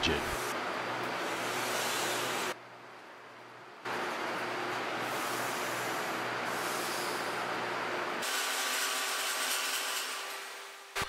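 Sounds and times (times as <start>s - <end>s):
hissing shop noise: 0.0s - 2.6s, 3.9s - 11.0s
band saw cutting steel: 8.2s - 11.0s.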